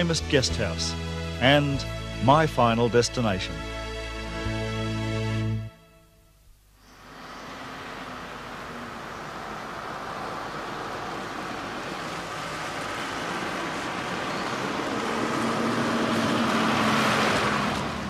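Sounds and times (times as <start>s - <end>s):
motor vehicle passing: 6.8s - 18.0s.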